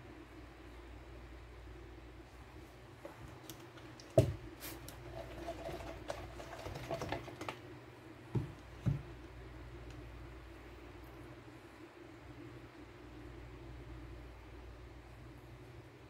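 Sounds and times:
dull thumps: 8.3s - 9.2s.

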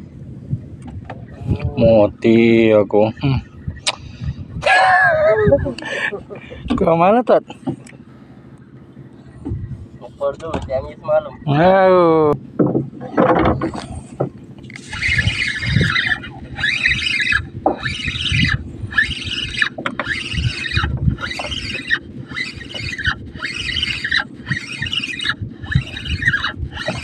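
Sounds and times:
fishing reel whirring: 14.6s - 27.0s.

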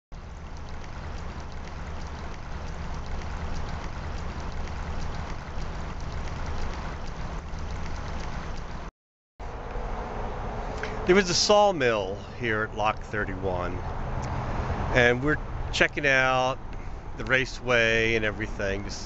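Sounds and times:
stream babbling: 0.2s - 8.9s, 10.8s - 13.7s.

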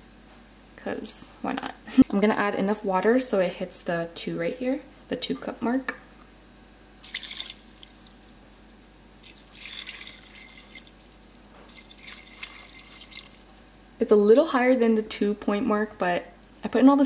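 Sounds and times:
water pouring into pot: 7.0s - 8.3s, 9.2s - 13.5s.

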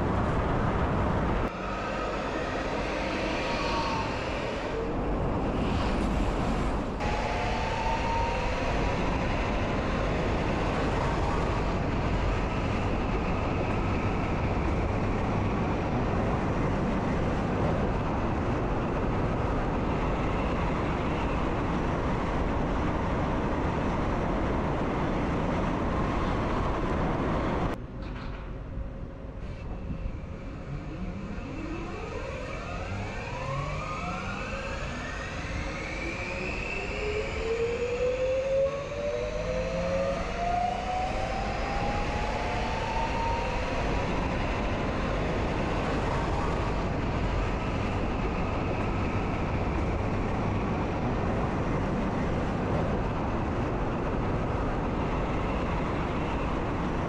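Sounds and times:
train rumbling on track: 0.0s - 57.0s
rising whine: 1.3s - 17.1s, 29.5s - 57.0s.

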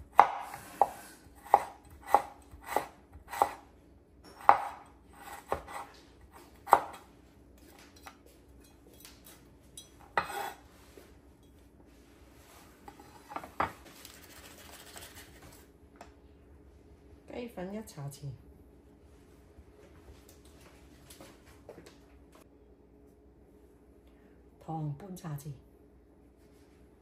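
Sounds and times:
cleaver chopping on wooden board: 0.2s - 0.9s.

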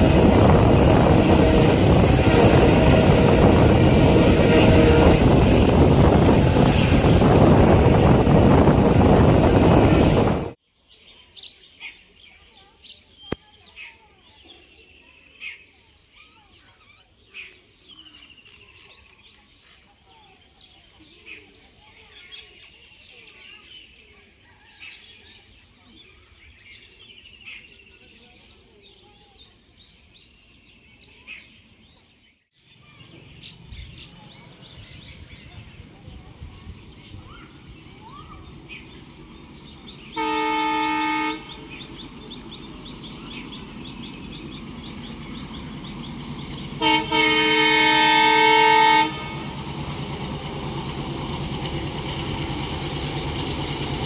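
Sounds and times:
locomotive air horn: 0.0s - 6.1s, 40.1s - 41.8s, 46.8s - 49.6s
locomotive engine and rail rumble: 0.0s - 10.6s, 18.0s - 54.0s
birds chirping: 0.0s - 54.0s.

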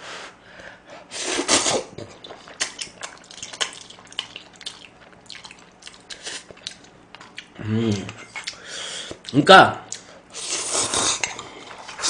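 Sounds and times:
chewing mouth sounds: 1.6s - 8.6s
person slurping noodles: 10.4s - 12.0s.

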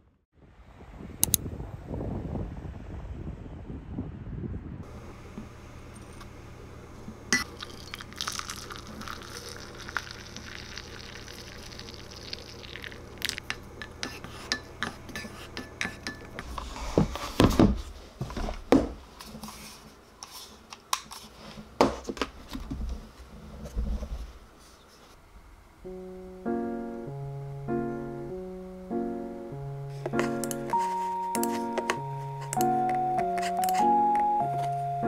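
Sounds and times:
liquid pouring into a mug: 7.4s - 13.6s
spoon stirring against a mug: 7.4s - 16.5s.

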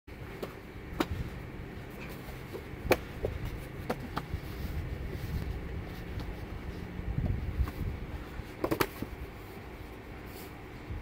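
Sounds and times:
fabric rustling and shuffling: 0.2s - 10.9s
sharp slaps on mats: 2.8s - 4.3s.

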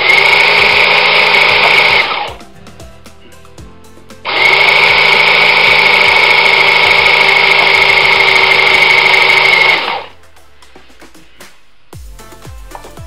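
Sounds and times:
electric motor high-pitched whine: 0.0s - 2.4s, 4.3s - 10.2s
whirring gear drive: 0.0s - 2.4s, 4.3s - 10.1s.

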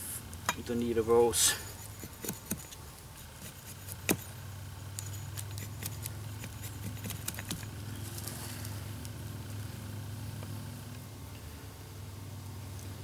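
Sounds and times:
axe head scraping wood: 1.6s - 4.3s, 5.0s - 8.6s.

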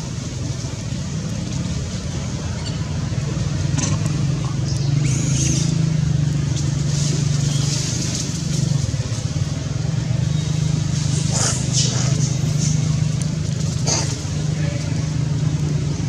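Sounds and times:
engine droning: 0.0s - 16.0s.

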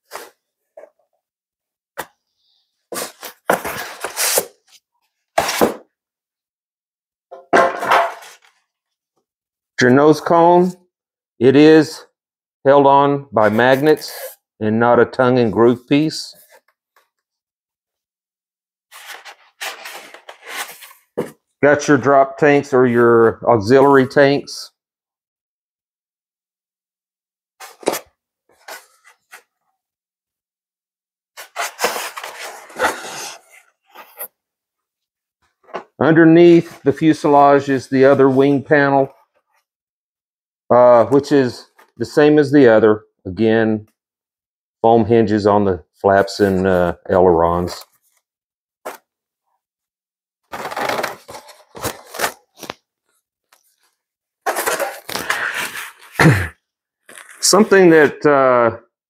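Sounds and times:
styrofoam scraping and crunching: 50.5s - 52.7s.

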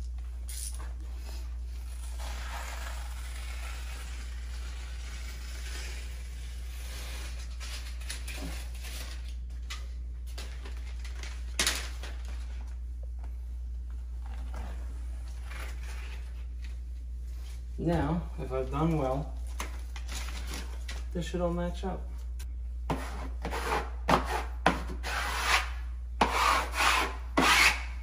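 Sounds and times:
steady low hum: 0.0s - 28.0s
wallpaper rustling and scraping: 14.0s - 21.1s.

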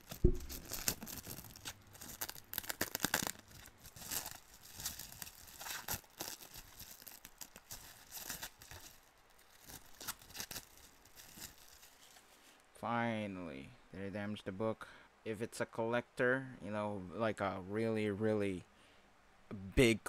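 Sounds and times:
plastic wrap crinkling and tearing: 0.0s - 12.4s.

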